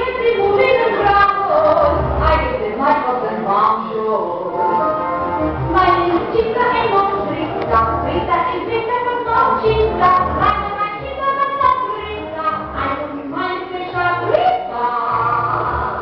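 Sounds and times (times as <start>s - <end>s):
backing track bass notes: 4.7s - 13.1s.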